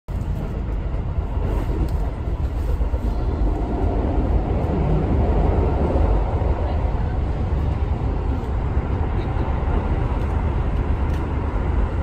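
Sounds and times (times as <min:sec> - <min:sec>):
train running on rails: 0:00.1 - 0:12.0.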